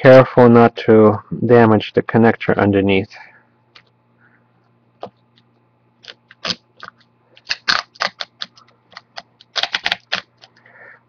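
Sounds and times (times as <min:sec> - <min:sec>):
adhesive tape peeling crackles: 0:06.0 - 0:10.5.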